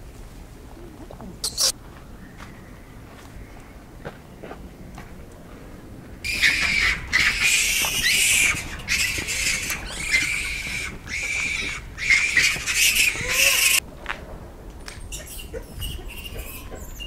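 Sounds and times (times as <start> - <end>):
monkeys screaming: 1.4 - 1.7, 6.2 - 13.8, 15.1 - 17.0.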